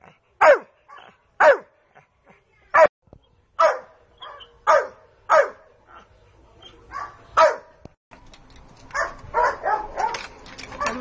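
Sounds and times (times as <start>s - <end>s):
dog barking: 0.4s - 1.7s, 3.6s - 6.0s, 6.9s - 7.7s, 8.9s - 10.2s.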